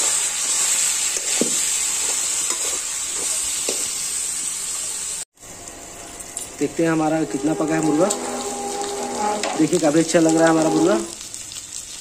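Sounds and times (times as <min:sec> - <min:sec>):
chicken sizzling in hot oil: 0:00.0 - 0:12.0
metal spatula scraping pan: 0:06.2 - 0:11.2.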